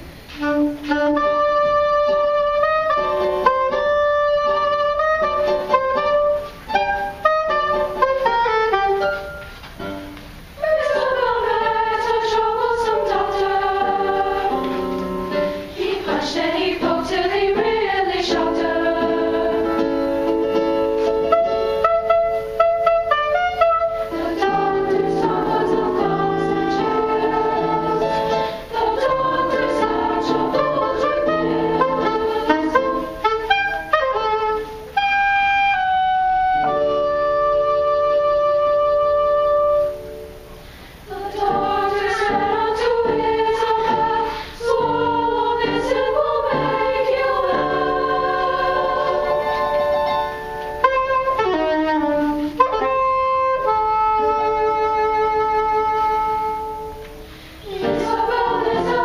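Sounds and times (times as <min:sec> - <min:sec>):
girls' choir singing: 0:10.6 - 0:22.1, 0:23.4 - 0:34.3, 0:41.0 - 0:52.6, 0:56.7 - 0:59.0.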